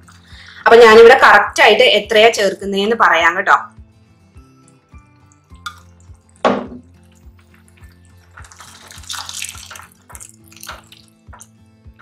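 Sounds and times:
soft background music: 0:00.0 - 0:12.0
syrup pouring and splashing: 0:04.4 - 0:11.6
sharp knock: 0:06.4 - 0:06.8.

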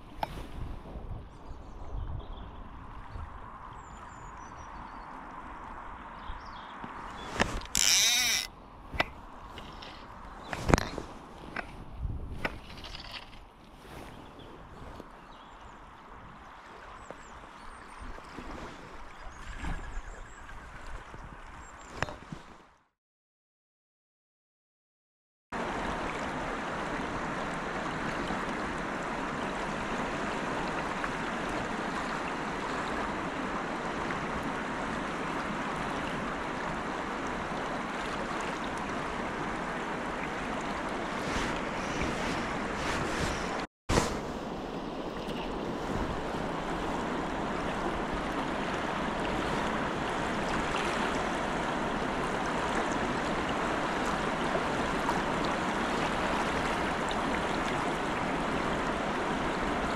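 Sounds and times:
river water rushing: 0:06.9 - 0:08.5, 0:25.6 - 0:59.9.

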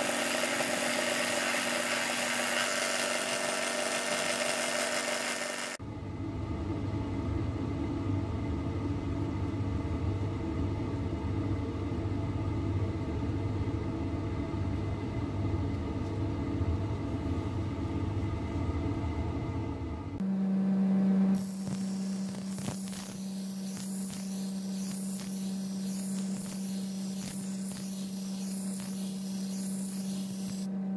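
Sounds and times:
belt sander grinding steel: 0:00.0 - 0:05.8, 0:21.4 - 0:30.7.

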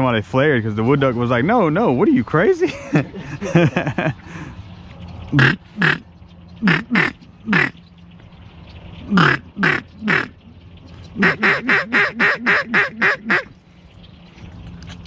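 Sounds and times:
duck call quacks: 0:05.4 - 0:06.0, 0:06.6 - 0:07.8, 0:09.1 - 0:10.3, 0:11.2 - 0:13.5.

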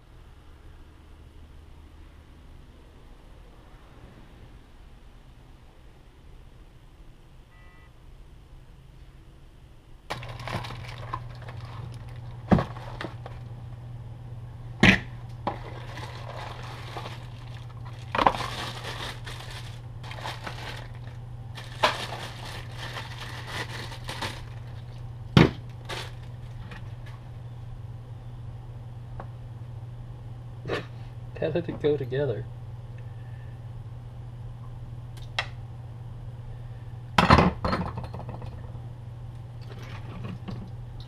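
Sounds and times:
steady low hum: 0:00.0 - 0:41.0
plastic packaging crinkling: 0:10.1 - 0:13.5, 0:15.4 - 0:27.3.

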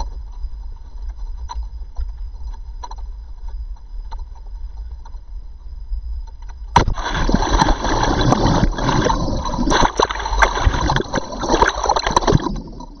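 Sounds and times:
capsule hitting water: 0:06.8 - 0:13.0
water churning and gurgling: 0:06.8 - 0:13.0.

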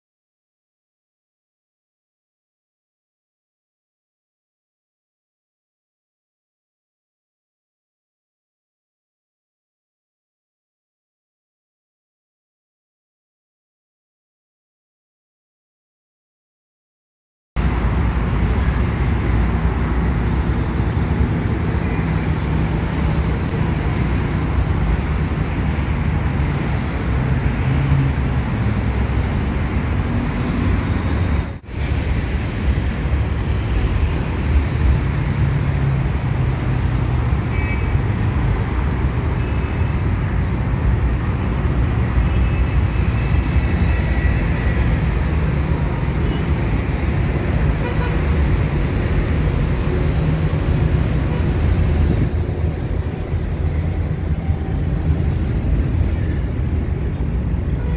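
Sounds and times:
road traffic rumble: 0:17.6 - 0:57.9.

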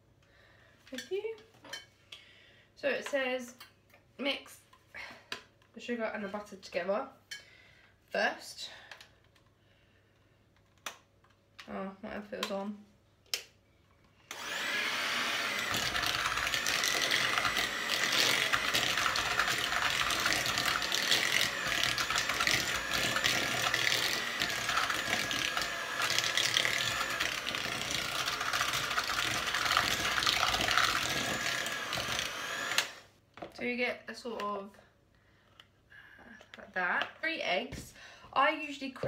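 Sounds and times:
electric hand mixer whining: 0:14.3 - 0:33.1.

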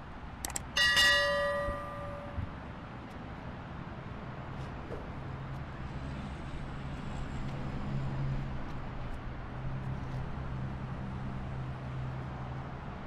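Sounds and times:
ship engine drone: 0:00.6 - 0:02.6.

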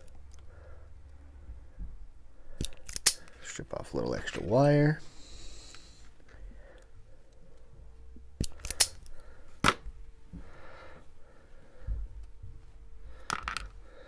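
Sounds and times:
wire cutters snipping clicks: 0:08.4 - 0:09.1.

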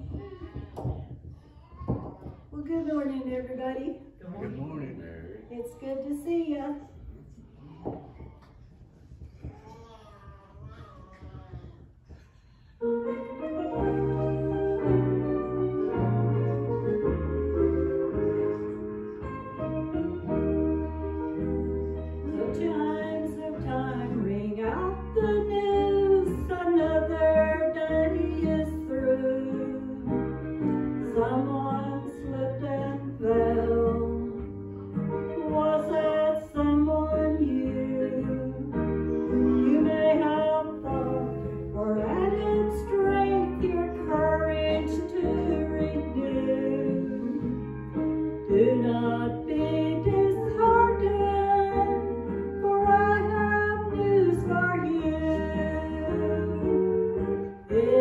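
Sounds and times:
instrumental accompaniment with bass: 0:13.0 - 0:58.0
woman singing a hymn: 0:22.3 - 0:30.4, 0:31.0 - 0:34.4, 0:35.3 - 0:38.8, 0:39.5 - 0:47.5, 0:48.4 - 0:58.0.

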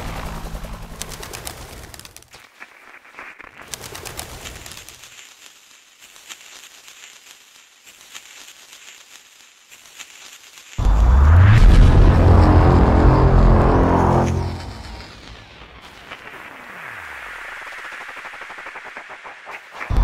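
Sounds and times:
music: 0:10.8 - 0:15.5.

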